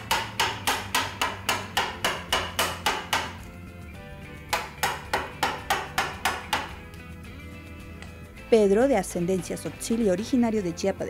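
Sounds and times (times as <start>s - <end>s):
mallet knocking on chisel: 0.0s - 3.5s, 4.5s - 6.9s.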